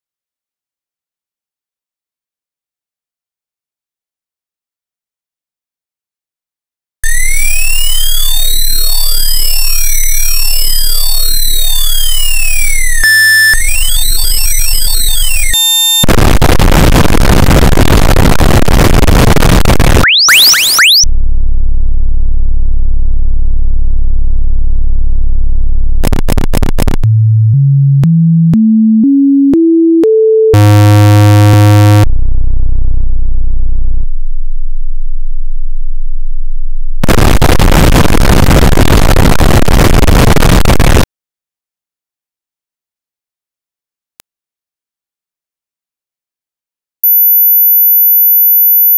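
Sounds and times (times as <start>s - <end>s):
synthesized chirps and glides: 7.0s - 16.0s, 20.0s - 21.0s, 27.0s - 32.1s
buzzy tone: 7.0s - 21.0s, 30.5s - 32.9s, 37.0s - 41.0s
pure tone stepping upward: 7.0s - 21.0s, 26.1s - 32.1s.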